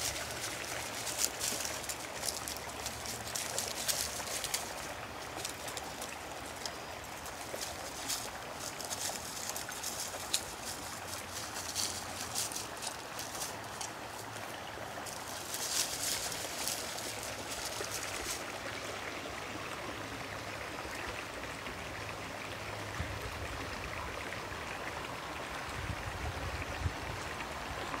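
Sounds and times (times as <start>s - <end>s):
dry leaves crackling underfoot: 0.0s - 19.5s
brook running: 0.0s - 28.0s.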